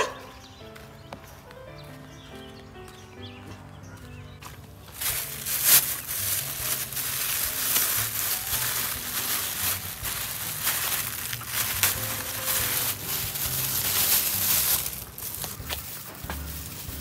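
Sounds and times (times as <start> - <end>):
plastic bag crinkling: 4.9 - 17.0.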